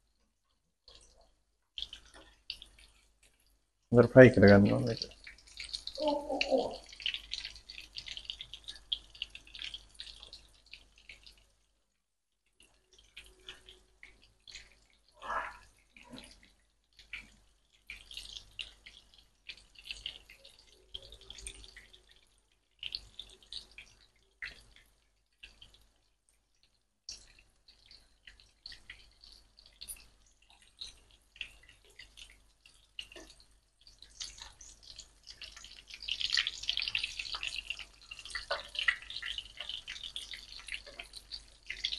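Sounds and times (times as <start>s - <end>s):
chicken sizzling in frying pan: 4.2s - 11.5s, 27.1s - 41.9s.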